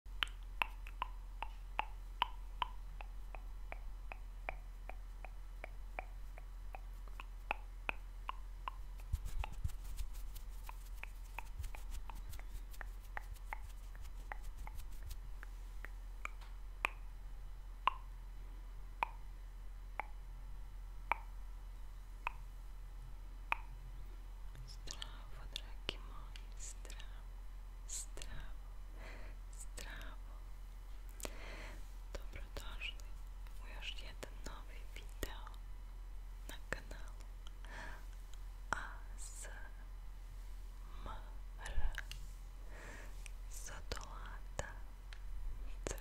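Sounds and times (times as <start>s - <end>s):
fine crackling mouth clicks: 0.2s - 9.6s, 10.4s - 17.0s
wet mouth clicks and pops: 0.2s - 9.6s, 10.6s - 17.0s, 19.0s - 19.2s, 21.1s - 21.3s, 22.2s - 22.4s.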